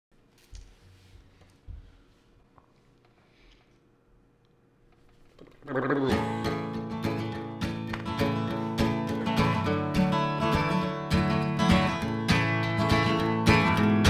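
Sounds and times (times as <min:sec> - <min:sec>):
acoustic guitar strumming: 0:06.1 - 0:14.0.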